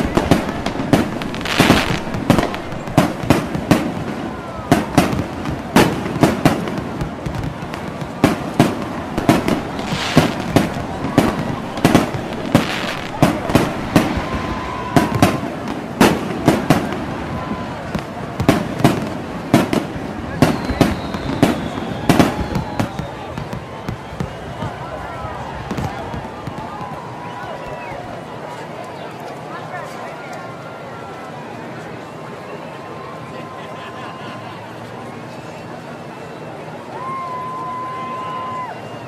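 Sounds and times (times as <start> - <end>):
fireworks bangs: 0.0 - 28.2
fireworks crackling and hissing: 0.0 - 28.5.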